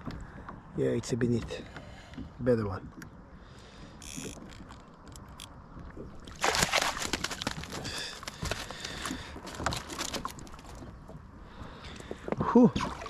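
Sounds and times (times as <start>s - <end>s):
fish thrashing splashes and knocks: 5.3s - 11.2s, 12.7s - 13.0s
landing net splashing into water: 6.2s - 10.6s.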